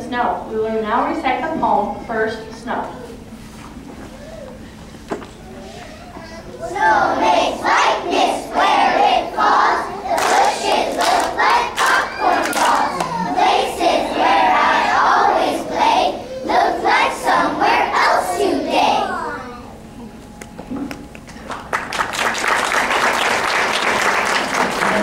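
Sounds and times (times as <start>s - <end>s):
children's voices in unison: 6.6s - 19.5s.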